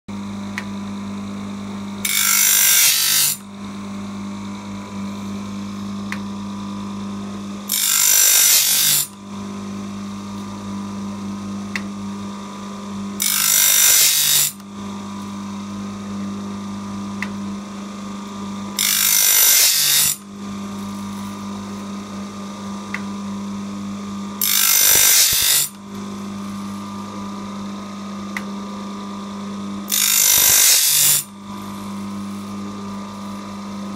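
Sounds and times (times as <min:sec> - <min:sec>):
grinding wheel grinding: 0:02.0 - 0:03.4, 0:13.2 - 0:14.6, 0:18.8 - 0:20.2, 0:24.4 - 0:25.8, 0:29.9 - 0:31.8.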